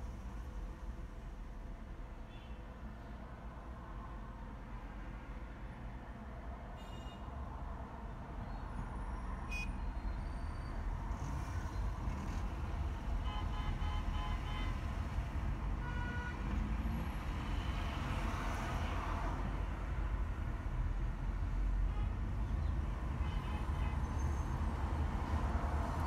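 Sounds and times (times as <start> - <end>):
short beeps: 9.5 - 9.8
brief tone: 9.5 - 10.8.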